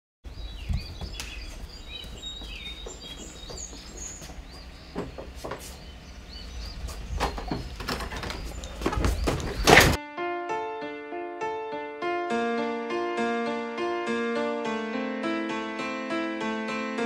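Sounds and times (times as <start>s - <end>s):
birds chirping: 0.2s - 10.0s
knocks and thumps: 2.4s - 5.8s, 6.7s - 10.0s.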